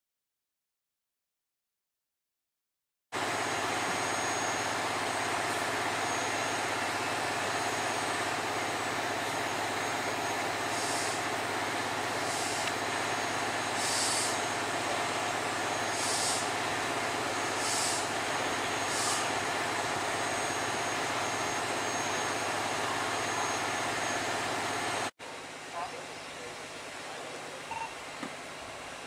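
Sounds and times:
heavy vehicle engine running: 3.2s - 25.1s
short high-pitched hisses: 10.6s - 11.2s, 12.1s - 12.7s, 13.7s - 14.4s, 15.9s - 16.5s, 17.5s - 18.1s, 18.8s - 19.4s.

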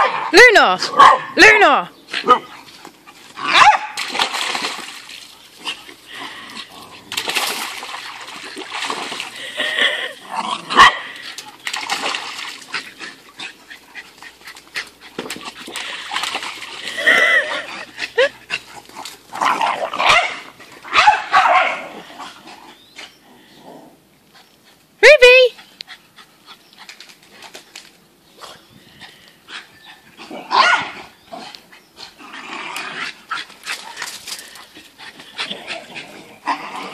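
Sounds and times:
water splashing: 3.5s - 21.0s.

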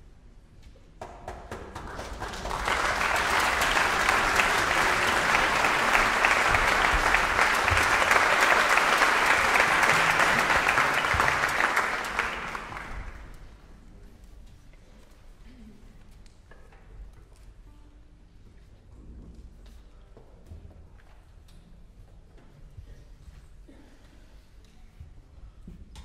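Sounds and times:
audience applauding: 1.2s - 13.5s.

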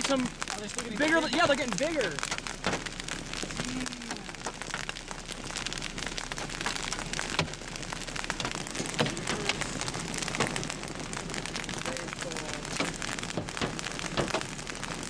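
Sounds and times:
hail pelting vehicle roof: 0.0s - 15.0s
louder hail knocks: 0.0s - 15.0s.

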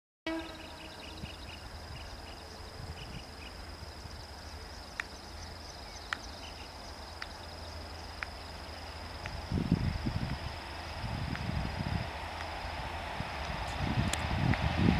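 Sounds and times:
high-pitched insect drone: 0.3s - 12.1s.

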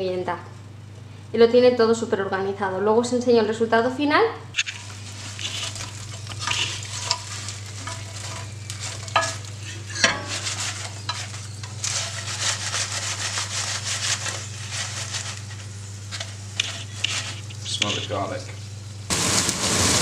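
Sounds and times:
steady low hum: 0.0s - 20.0s
spatula stirring potatoes: 4.6s - 18.6s
potatoes sizzling in oil: 4.6s - 20.0s.

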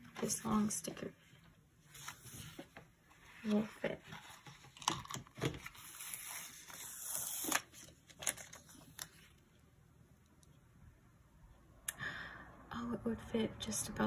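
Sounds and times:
paper rustling: 1.9s - 9.3s.

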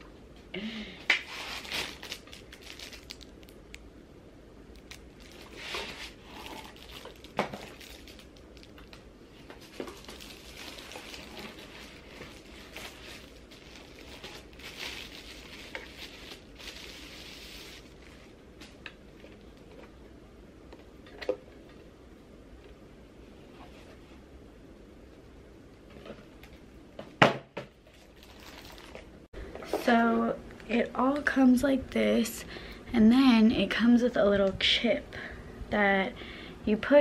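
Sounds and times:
packaging rustling and crinkling: 1.2s - 3.6s, 4.8s - 19.8s, 27.8s - 29.2s.

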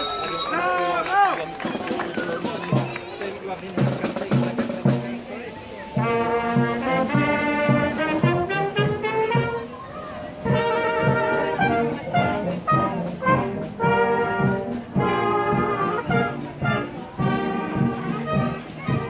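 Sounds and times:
wind band playing a tune: 0.0s - 19.0s.

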